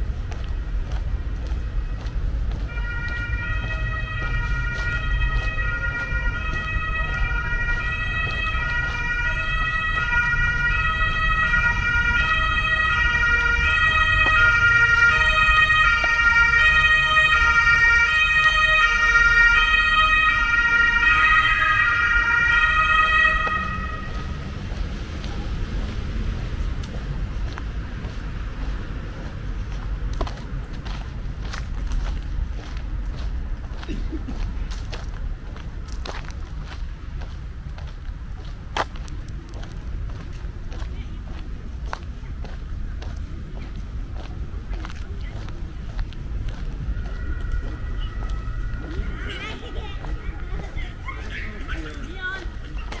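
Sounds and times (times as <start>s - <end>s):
low traffic rumble: 0.0s - 53.0s
two-tone siren: 2.6s - 24.8s, 45.8s - 52.0s.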